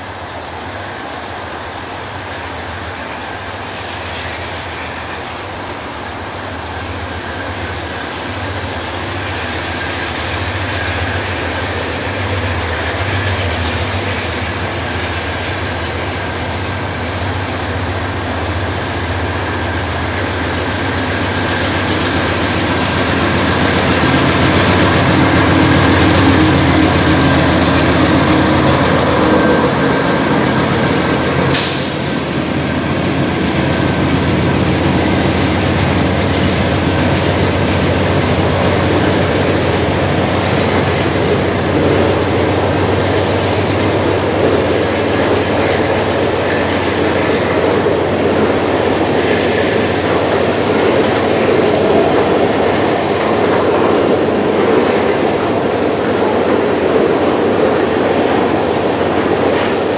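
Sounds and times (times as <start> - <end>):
diesel locomotive engine: 0.0 - 59.9
train wheels rolling on rail: 0.0 - 59.9
brief hiss: 31.6 - 32.4.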